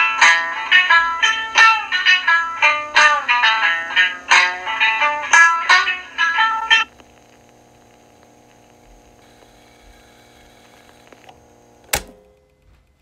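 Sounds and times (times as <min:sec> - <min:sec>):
plucked lute notes: 0:00.0 - 0:06.9
faint steady hum: 0:00.0 - 0:13.0.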